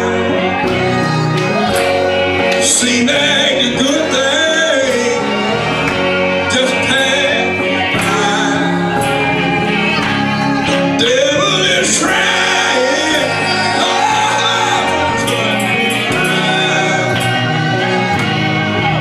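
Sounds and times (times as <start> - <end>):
gospel choir singing: 0.0 - 19.0
guitar: 0.0 - 19.0.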